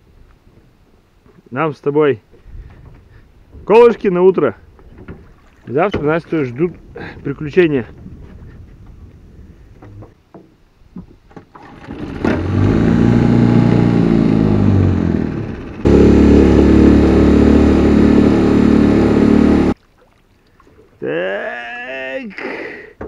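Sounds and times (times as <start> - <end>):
outboard motor running: 11.6 - 20.0.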